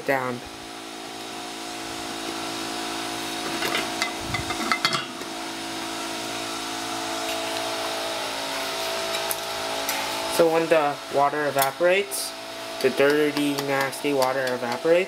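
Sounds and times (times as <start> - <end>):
steady mechanical motor hum: 0.0 - 15.0
metal pot lid clinking: 3.6 - 5.1.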